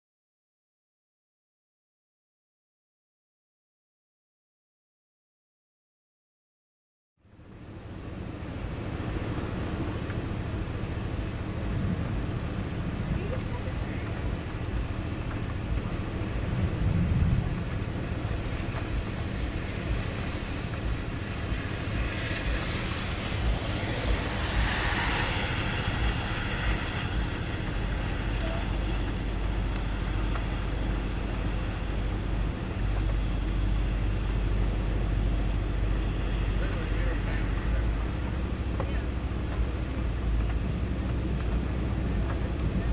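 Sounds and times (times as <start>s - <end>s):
wind buffeting microphone: 7.8s - 36.6s.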